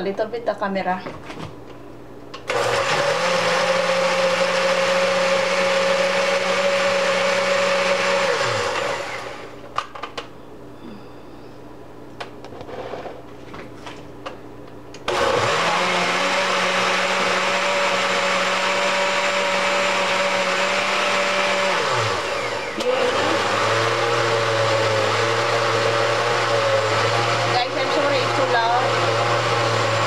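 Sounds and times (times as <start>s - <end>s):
blender grinding: 2.4s - 9.6s, 15.0s - 30.0s.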